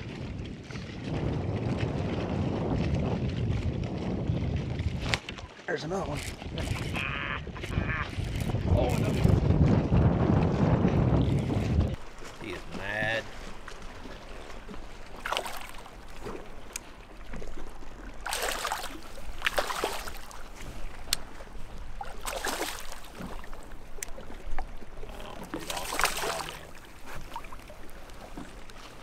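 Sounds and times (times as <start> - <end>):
fish thrashing and splashing: 6.1 - 9.4, 12.0 - 29.0.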